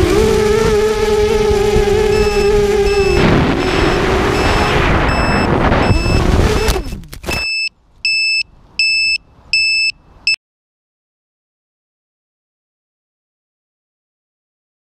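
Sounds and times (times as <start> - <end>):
quadcopter motors whining: 0.0 - 7.0
high electronic beeper: 2.1 - 10.0.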